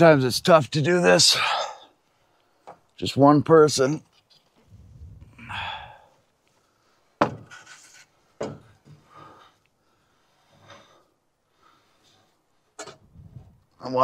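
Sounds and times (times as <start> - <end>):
heavy breath of effort: 5.0 - 7.0, 8.9 - 12.4.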